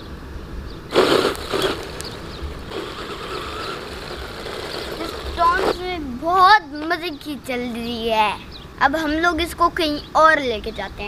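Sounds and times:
motor whine: 0:00.9 - 0:05.8
radio-controlled buggy on gravel: 0:00.9 - 0:06.0
grit and tyre noise: 0:00.9 - 0:06.2.

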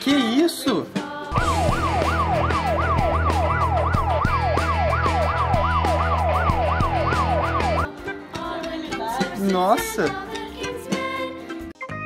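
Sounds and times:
wailing alarm siren: 0:01.4 - 0:07.9.

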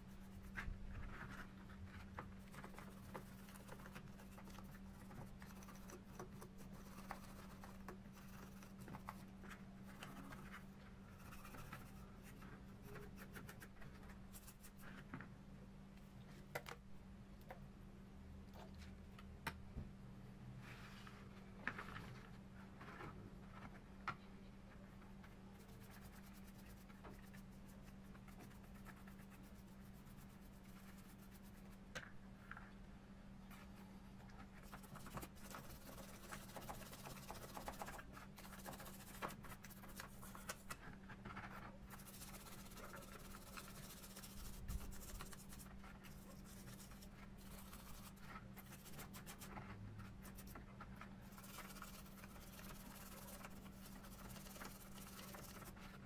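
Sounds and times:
steady low hum: 0:00.0 - 0:56.0
brush scrubbing metal: 0:34.6 - 0:40.8, 0:41.5 - 0:49.6, 0:51.2 - 0:56.0.

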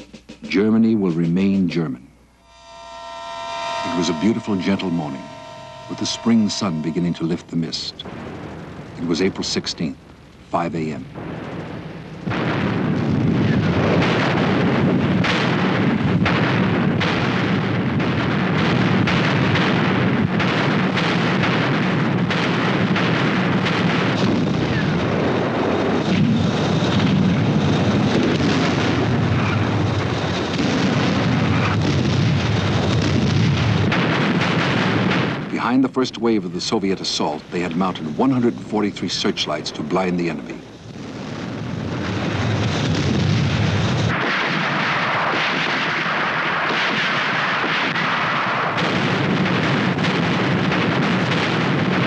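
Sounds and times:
artillery gunfire and explosions: 0:02.7 - 0:52.0.

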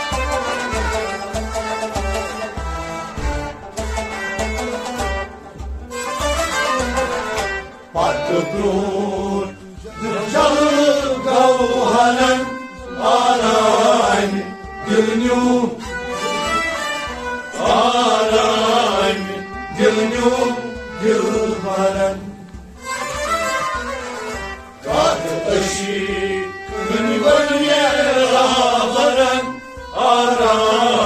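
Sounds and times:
bowed string instrument: 0:00.0 - 0:31.0
hand drum: 0:00.0 - 0:31.0
harmonium held notes: 0:00.0 - 0:31.0
rabab plucking: 0:00.0 - 0:31.0
men singing in chanting style: 0:07.9 - 0:15.8, 0:17.5 - 0:22.5, 0:24.8 - 0:31.0.

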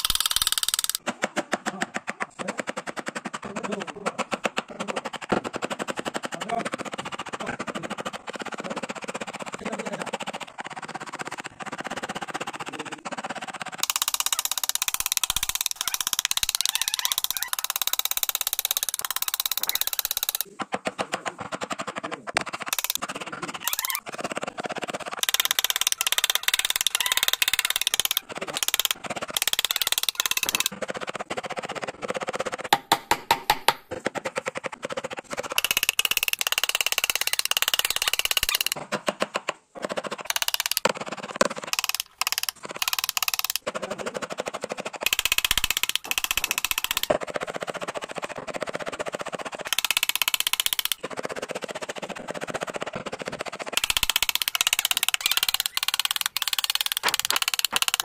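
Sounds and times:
mallet striking chisel into wood: 0:32.7 - 0:33.9.

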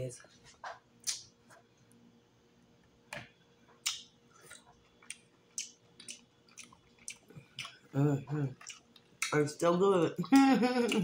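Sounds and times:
wet mouth clicks and smacks: 0:01.0 - 0:01.3, 0:03.8 - 0:07.8, 0:08.6 - 0:09.4
person chewing: 0:03.7 - 0:11.0.

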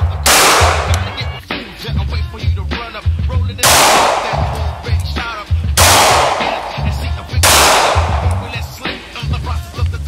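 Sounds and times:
pistol shots: 0:00.0 - 0:01.3, 0:03.6 - 0:09.0
music with bass beat: 0:00.0 - 0:10.0.

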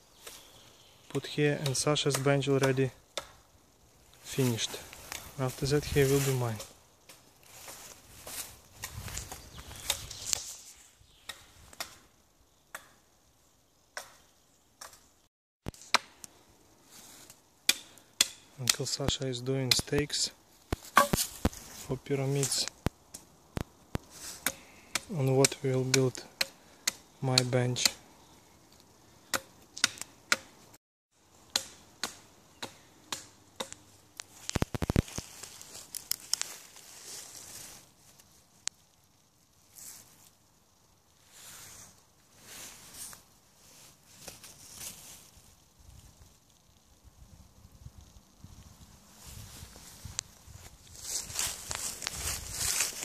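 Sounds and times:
footsteps rustling through leaves: 0:04.2 - 0:06.6, 0:07.3 - 0:11.0, 0:34.2 - 0:38.4, 0:41.2 - 0:45.5, 0:48.9 - 0:53.0
blade chopping wooden stake: 0:20.8 - 0:21.5, 0:24.4 - 0:28.0, 0:31.5 - 0:33.8.

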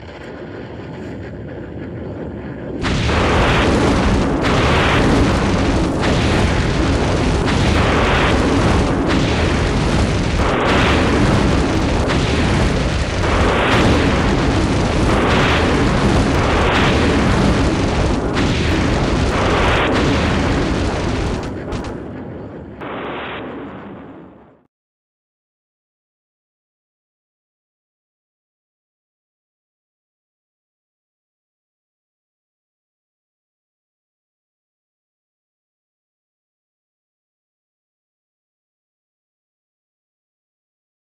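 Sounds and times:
rumbling of fire: 0:00.0 - 0:24.7
rocket explosion: 0:02.8 - 0:22.2, 0:22.8 - 0:24.7.

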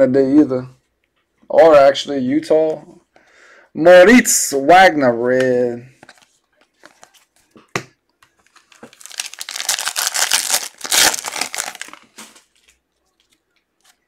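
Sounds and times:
foil wrapper crinkling: 0:08.4 - 0:12.8.

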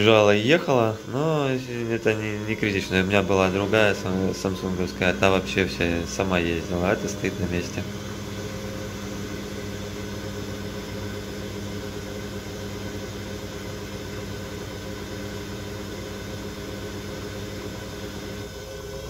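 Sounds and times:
washing machine spin cycle hum: 0:00.0 - 0:19.0.

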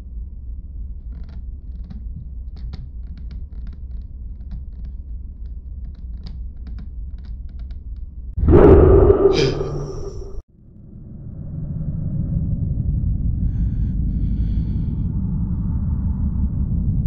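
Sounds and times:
low rumbling drone: 0:08.4 - 0:10.4.

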